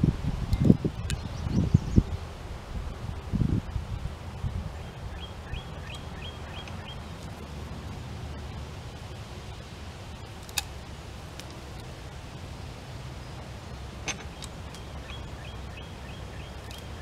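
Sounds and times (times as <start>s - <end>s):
bird chirping: 4.8s - 7.1s, 14.2s - 17.0s.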